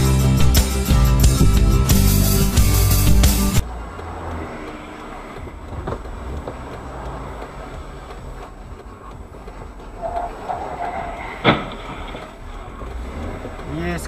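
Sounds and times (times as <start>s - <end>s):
car road and engine rumble: 0.0s - 14.0s
faint clicks: 3.6s - 14.0s.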